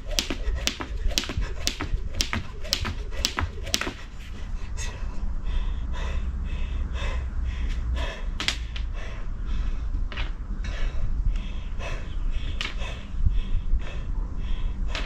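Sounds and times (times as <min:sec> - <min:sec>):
steady low rumble: 0:00.0 - 0:15.0
woman breathing hard and panting: 0:03.9 - 0:10.0, 0:10.6 - 0:15.0.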